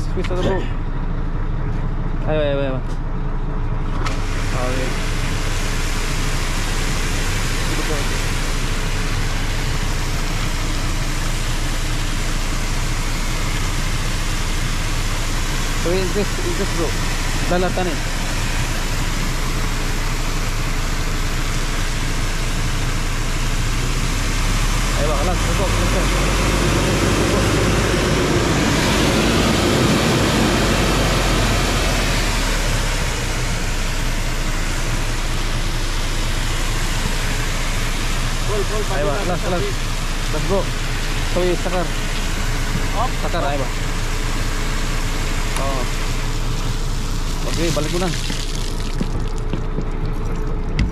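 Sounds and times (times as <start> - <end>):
truck engine droning: 0.0 - 50.9
water jet rushing: 4.1 - 50.9.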